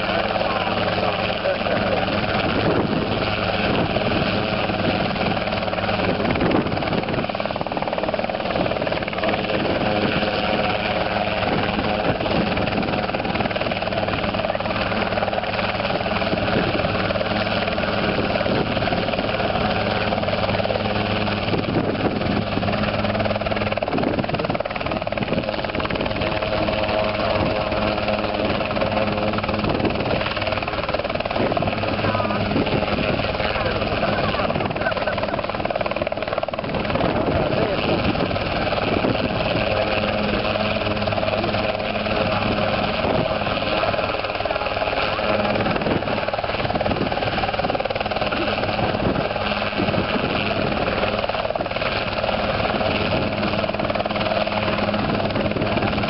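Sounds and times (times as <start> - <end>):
helicopter hovering: 0.0 - 56.0.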